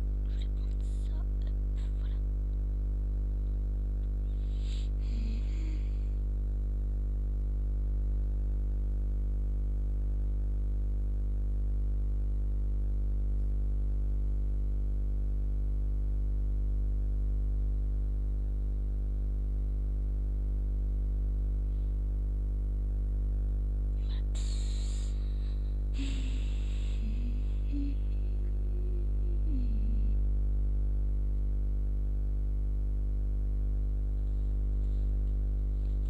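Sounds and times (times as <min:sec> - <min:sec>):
low electrical mains hum: 0:00.0 - 0:36.0
faint wavering tone: 0:24.0 - 0:30.3.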